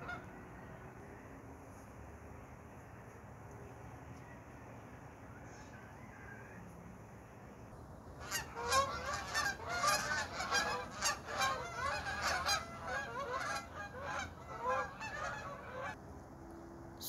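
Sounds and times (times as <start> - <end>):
flock of geese honking: 0.0 - 0.4, 8.2 - 16.0.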